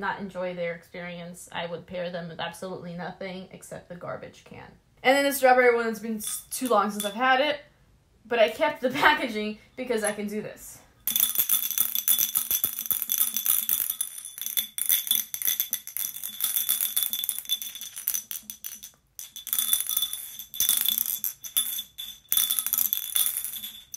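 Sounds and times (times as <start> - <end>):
marble rattling in glass bottle: 6.2 - 7.3, 11.0 - 23.9.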